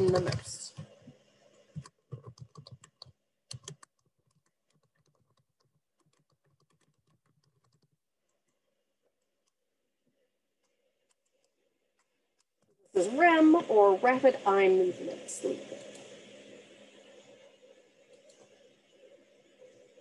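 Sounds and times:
keyboard typing clicks: 0:01.7 - 0:07.9.

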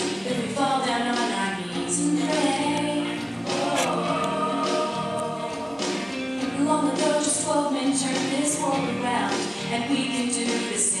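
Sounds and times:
musical accompaniment: 0:00.0 - 0:11.0
voices singing a religious song: 0:02.0 - 0:07.3.

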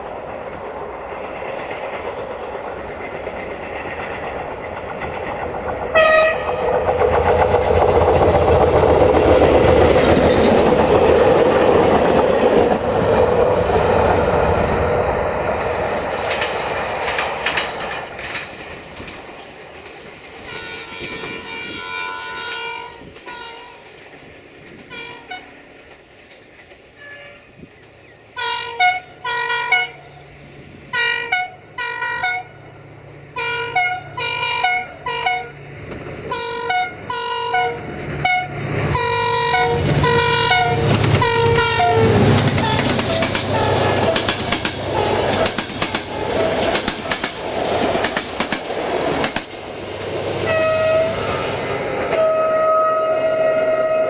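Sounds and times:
train wheels clattering over rails: 0:00.0 - 0:21.7, 0:23.0 - 0:27.0, 0:37.8 - 0:52.3
rumble of approaching locomotive: 0:00.0 - 0:54.0
locomotive horn short blasts: 0:06.0 - 0:06.5, 0:20.5 - 0:23.8, 0:27.0 - 0:27.5, 0:28.4 - 0:30.0, 0:33.4 - 0:35.6, 0:36.3 - 0:42.8, 0:43.5 - 0:44.2, 0:50.4 - 0:54.0.

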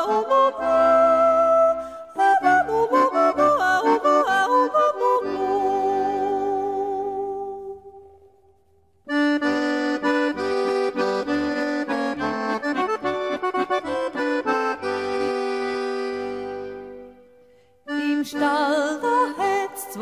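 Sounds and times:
accordion run of notes: 0:00.0 - 0:07.1, 0:09.1 - 0:19.7
person singing: 0:00.0 - 0:08.0, 0:17.9 - 0:20.0.

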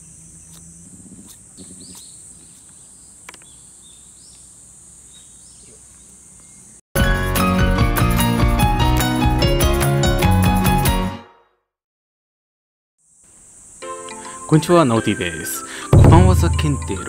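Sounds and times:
bird chirps: 0:00.0 - 0:06.7
high insect drone: 0:13.0 - 0:17.0
loud music: 0:16.0 - 0:17.0.

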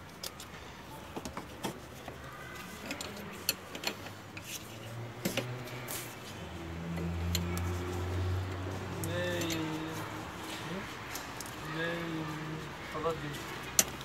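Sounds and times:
spanner clicking and scraping on metal: 0:02.6 - 0:06.0, 0:06.9 - 0:08.1, 0:09.0 - 0:10.0, 0:13.6 - 0:14.0.

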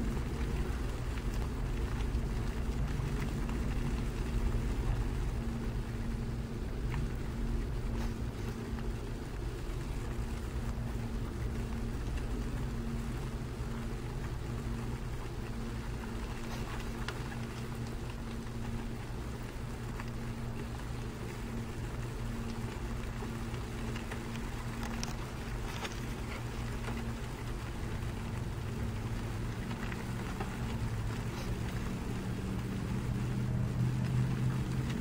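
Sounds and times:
low engine hum: 0:27.8 - 0:35.0.

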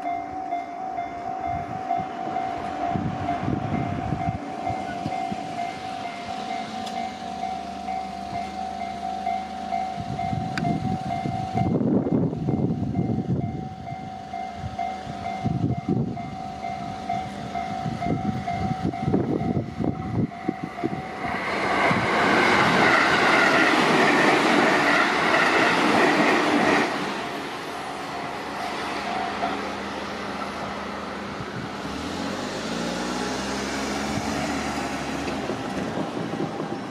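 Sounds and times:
level crossing warning bell: 0:00.0 - 0:21.6
electric train passing: 0:00.0 - 0:36.9.

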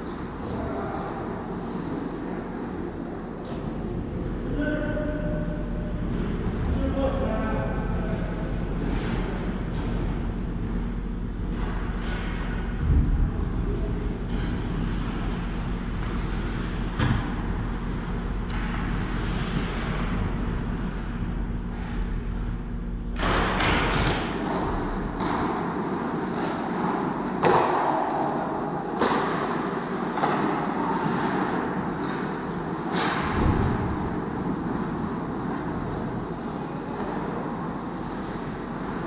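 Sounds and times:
steady low hum: 0:00.0 - 0:39.0
puck and sticks knocking boards: 0:23.2 - 0:34.0.

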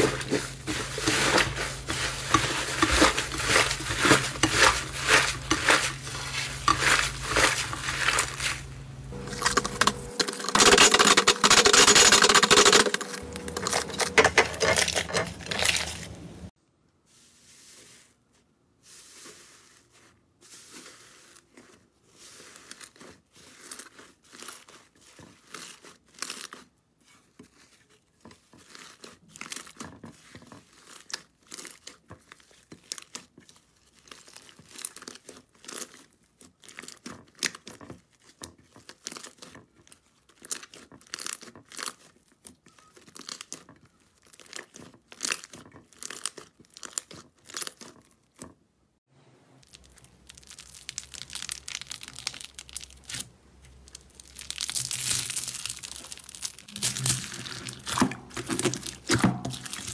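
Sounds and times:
slime crackling and popping: 0:30.6 - 0:48.5, 0:49.6 - 0:59.9.

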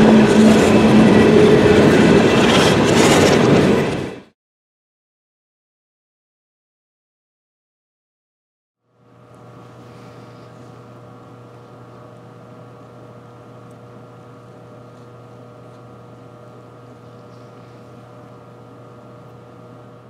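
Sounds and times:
diesel locomotive engines humming: 0:00.0 - 0:04.3, 0:08.9 - 0:20.0.

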